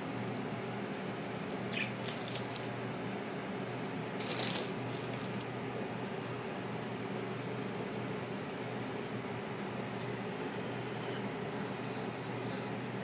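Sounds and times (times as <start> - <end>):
fan-like hum: 0.0 - 13.0
breadcrumbs crackling rustles: 4.2 - 5.5.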